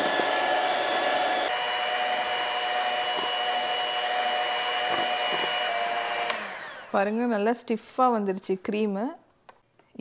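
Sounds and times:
electric mixer whining: 0:00.0 - 0:07.4.

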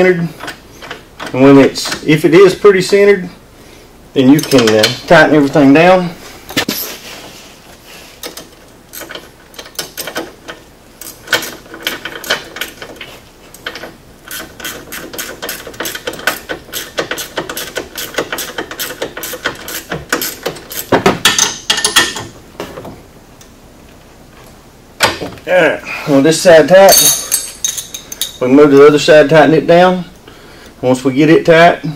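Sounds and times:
metal clanks: 0:04.3 - 0:05.1, 0:08.2 - 0:22.8, 0:26.8 - 0:28.5
ratchet wrench clicking: 0:13.6 - 0:22.1.

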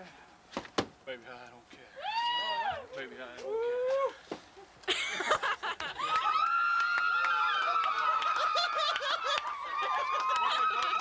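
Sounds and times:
long high scream: 0:02.0 - 0:02.8, 0:06.1 - 0:08.6
women shrieking and laughing: 0:04.9 - 0:11.0.

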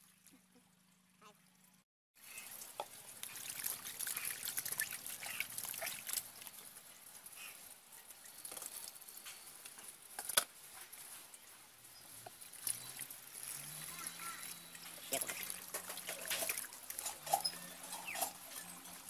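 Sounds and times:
small water splashes: 0:02.2 - 0:09.1, 0:12.1 - 0:19.0
hands rubbing fish in water: 0:02.3 - 0:07.7.

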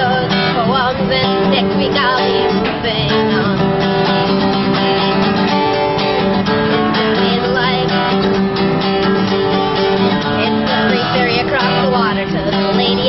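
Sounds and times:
acoustic guitar strumming: 0:00.0 - 0:13.0.

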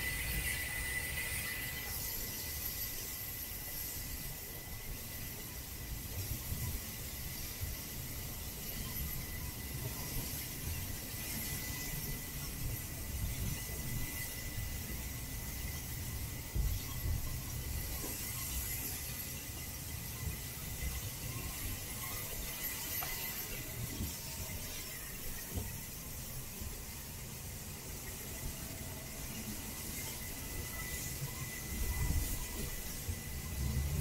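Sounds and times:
train wheel rumble: 0:00.0 - 0:34.0
wheels squealing on rails: 0:00.0 - 0:34.0.

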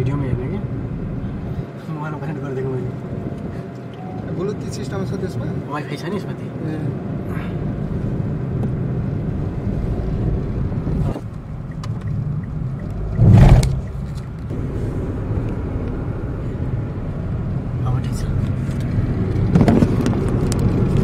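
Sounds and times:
car road and engine rumble: 0:00.0 - 0:21.0
loud rush of noise: 0:12.9 - 0:15.3.

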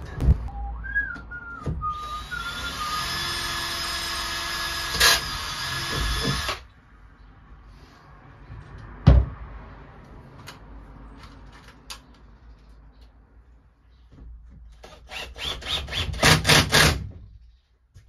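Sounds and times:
cordless drill driving screws: 0:02.0 - 0:06.6.

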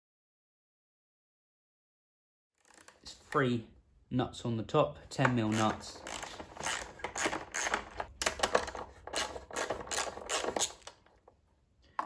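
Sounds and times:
socket ratchet clicking: 0:05.5 - 0:11.1.

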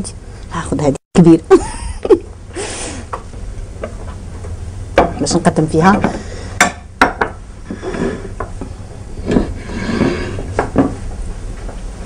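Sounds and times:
plates knocking on wooden countertop: 0:06.0 - 0:07.4
plates sliding on wooden countertop: 0:07.7 - 0:08.5, 0:09.2 - 0:11.0.

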